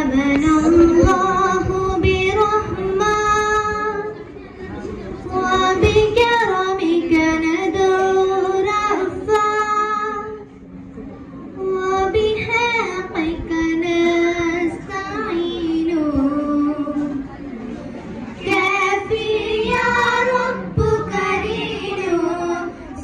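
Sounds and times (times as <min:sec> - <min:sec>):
girls singing into a microphone: 0:00.0 - 0:04.2, 0:05.2 - 0:10.5, 0:11.6 - 0:17.3, 0:18.3 - 0:23.0.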